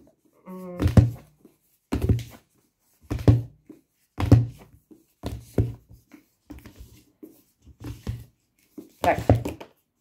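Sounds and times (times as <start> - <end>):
books thumping on table: 0.7 - 2.4, 3.0 - 7.1, 7.7 - 9.8.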